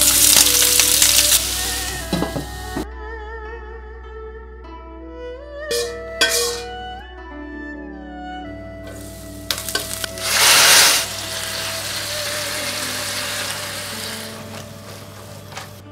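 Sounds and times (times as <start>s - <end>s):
meat sizzling in a wok: 0.0s - 2.8s, 5.7s - 6.7s, 8.9s - 15.6s
metal spatula stirring: 5.7s - 6.7s, 9.0s - 12.0s.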